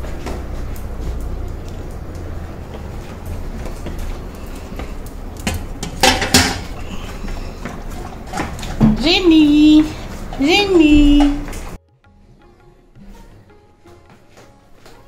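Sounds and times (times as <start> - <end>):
dishes clinking: 3.1 - 11.8.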